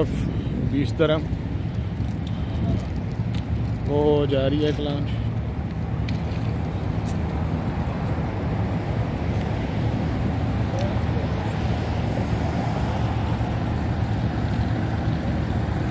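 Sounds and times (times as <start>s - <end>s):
low engine rumble: 0.0s - 15.9s
traffic noise: 0.0s - 15.9s.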